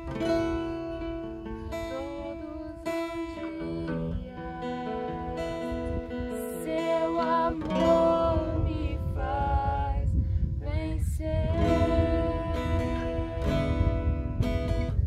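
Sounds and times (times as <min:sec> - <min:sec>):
acoustic guitar strumming: 0:00.0 - 0:10.0, 0:11.4 - 0:15.0
people singing together: 0:03.2 - 0:10.2.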